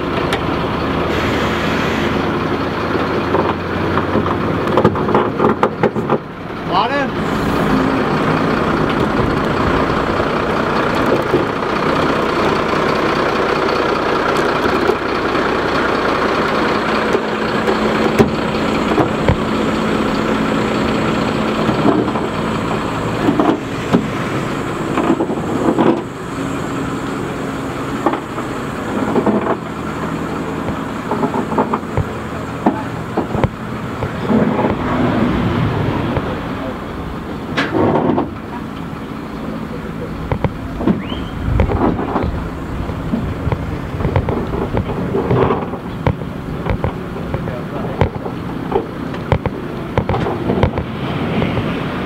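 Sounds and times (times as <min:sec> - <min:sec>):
truck engine running: 0:00.0 - 0:52.0
knocks and clanks: 0:03.2 - 0:06.3, 0:17.0 - 0:24.2, 0:24.8 - 0:26.2, 0:27.9 - 0:35.0, 0:37.4 - 0:38.9, 0:40.2 - 0:51.7.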